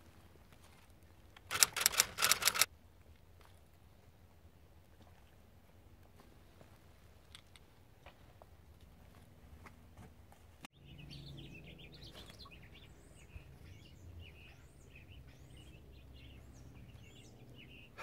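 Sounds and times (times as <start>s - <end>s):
birds chirping and twittering: 10.8s - 18.0s.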